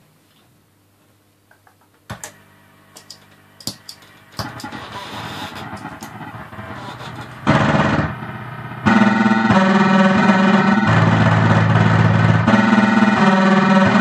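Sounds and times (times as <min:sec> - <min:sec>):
distorted electric bass: 0:04.4 - 0:14.0.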